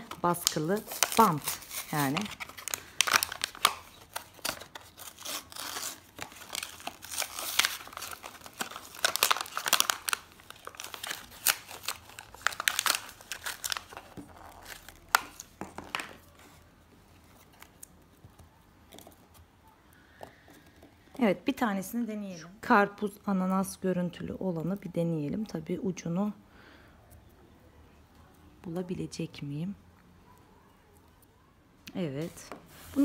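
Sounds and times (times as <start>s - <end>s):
paper packet crinkling and tearing: 0.0s - 16.6s.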